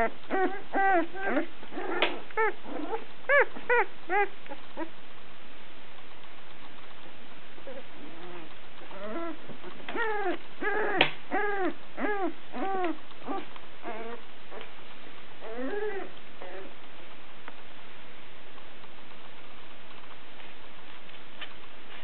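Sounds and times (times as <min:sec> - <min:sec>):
puppies whimpering: 0:00.0 - 0:04.9, 0:07.6 - 0:14.7, 0:15.4 - 0:16.8.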